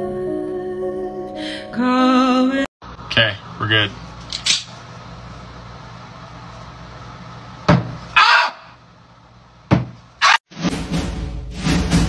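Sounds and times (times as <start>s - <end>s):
short harsh cry: 8.1s - 8.8s, 10.2s - 10.4s.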